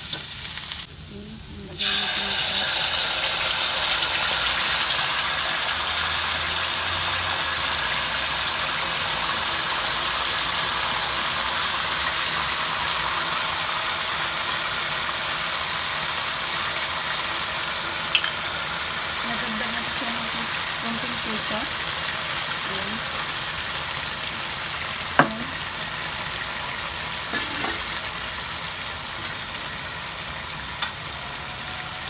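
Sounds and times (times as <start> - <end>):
sauce sizzling in oil: 0.0 - 32.0.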